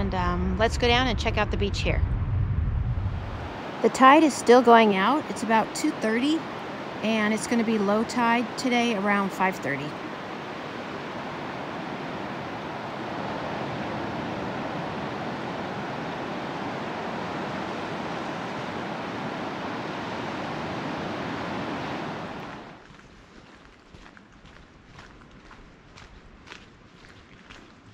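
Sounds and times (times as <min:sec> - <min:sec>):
ocean surf breaking on beach: 0:03.2 - 0:22.8.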